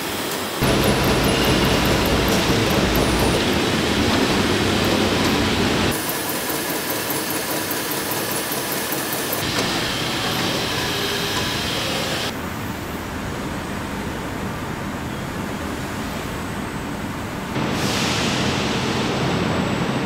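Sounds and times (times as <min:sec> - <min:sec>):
punching machine noise: 0:00.6 - 0:07.4, 0:08.0 - 0:12.3.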